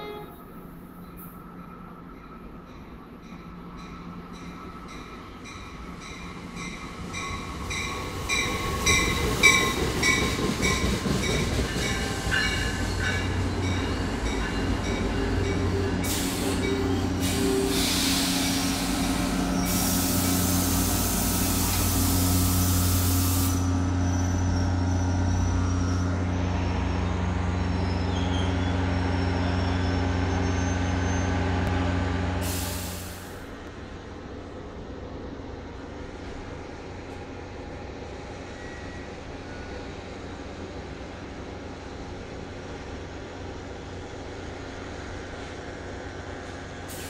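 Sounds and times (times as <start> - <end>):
loud hiss of air: 16.0 - 23.8, 32.4 - 33.5.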